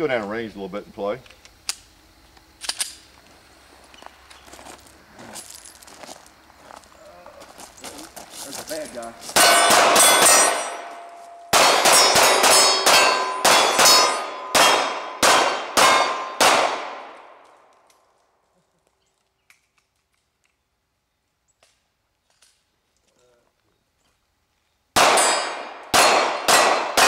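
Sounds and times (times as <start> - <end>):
ringing of struck steel targets: 9.4 - 17.2, 25.0 - 27.0
pistol shots: 9.4 - 17.4, 25.0 - 27.0.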